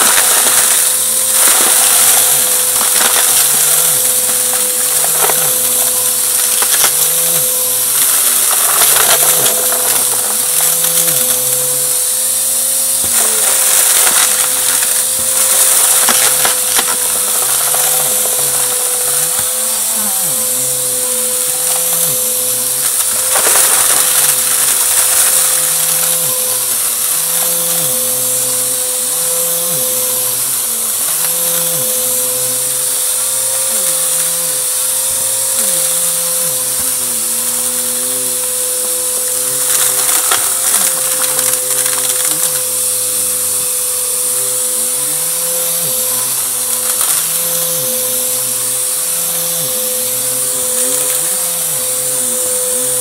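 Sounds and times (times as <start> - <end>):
vacuum cleaner running: 0.0 - 53.0
vacuum crackling on debris: 0.0 - 53.0.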